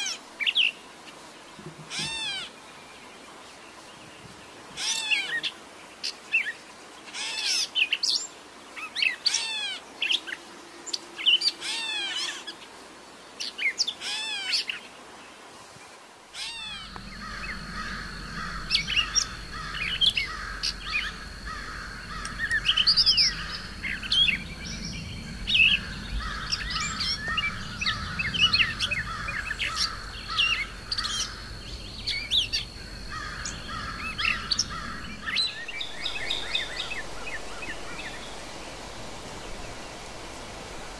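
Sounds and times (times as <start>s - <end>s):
bird chirps: 16.6s - 39.8s
low steady hum: 16.6s - 40.9s
thin high tone: 16.6s - 40.9s.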